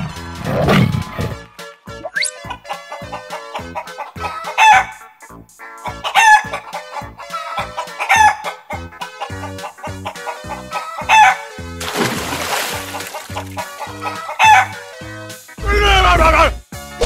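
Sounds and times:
background music with steady beat: 0.0 - 12.0, 12.9 - 17.0
rooster calls: 10.9 - 11.5, 13.2 - 14.8.

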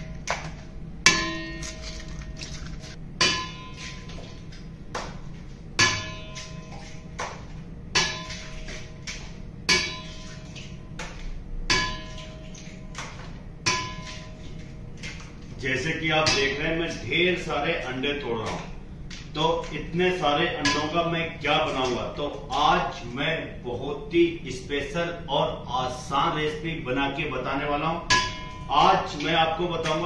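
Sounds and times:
eggs knocking on metal bowl: 0.0 - 14.6, 20.4 - 22.8
metal bowl ringing: 1.0 - 4.6, 5.7 - 7.2, 7.9 - 9.0, 9.6 - 11.0, 11.6 - 13.0, 13.6 - 14.6, 16.2 - 17.0, 20.5 - 21.9, 27.9 - 30.0.

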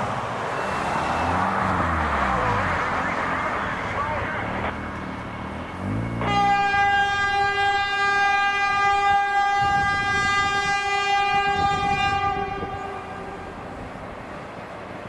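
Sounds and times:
train rumble: 3.7 - 15.0
train air horn blast: 5.9 - 14.0.

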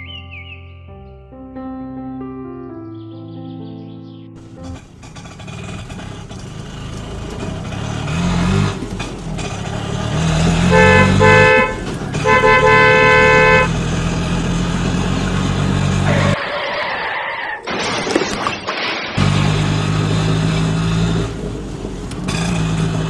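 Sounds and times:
low motor hum: 4.4 - 16.3
toy train electronic horn: 10.6 - 13.8.

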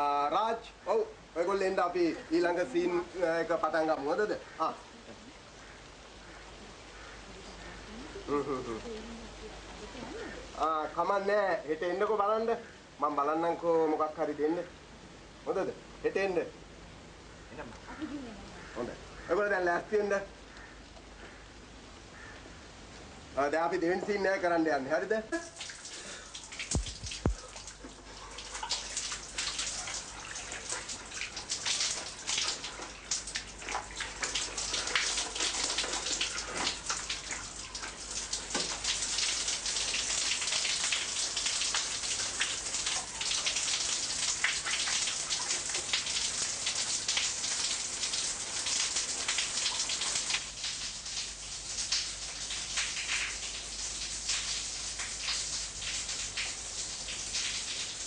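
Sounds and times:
steady rain falling: 0.0 - 58.0.

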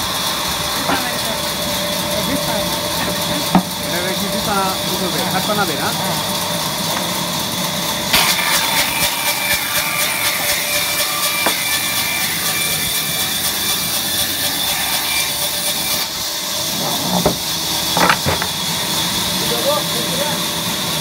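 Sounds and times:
band saw cutting log: 0.0 - 21.0
sharp knocks: 3.5 - 3.8, 11.4 - 11.8, 16.8 - 18.6.

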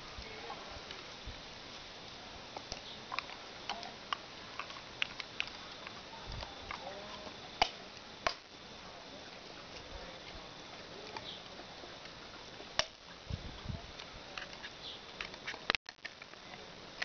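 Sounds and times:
pigs chewing grass: 0.0 - 8.0.

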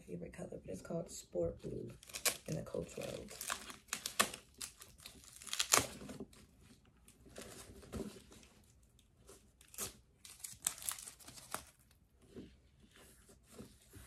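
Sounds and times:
plastic wrapping crinkling and tearing: 1.9 - 12.0.

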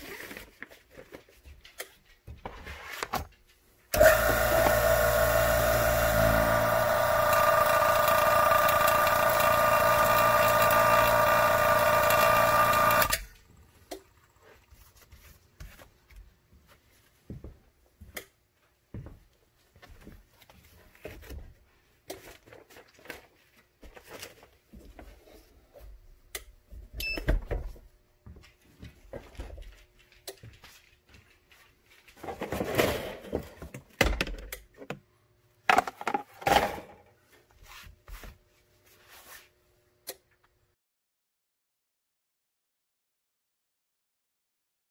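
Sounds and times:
vacuum pump whining: 3.9 - 13.3.

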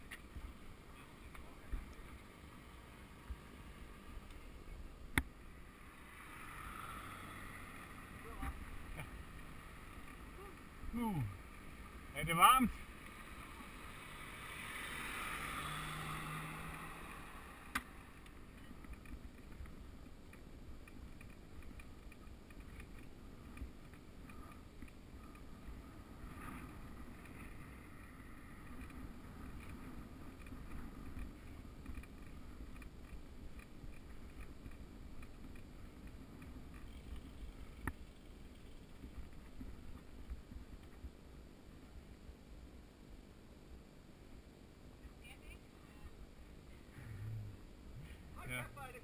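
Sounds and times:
bicycle tyre rumble: 5.4 - 12.1, 12.8 - 41.0.

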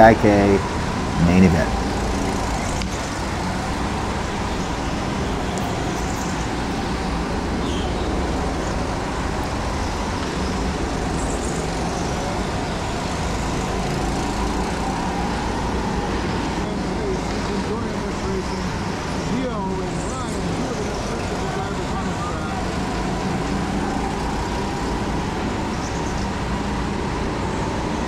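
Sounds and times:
go-kart motor and tyre noise: 0.0 - 28.0.

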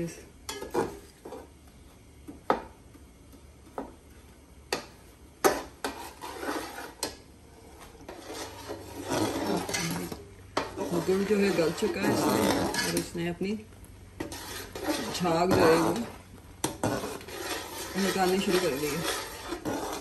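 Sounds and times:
spoon stirring in metal pot: 4.7 - 13.2, 14.1 - 20.0.

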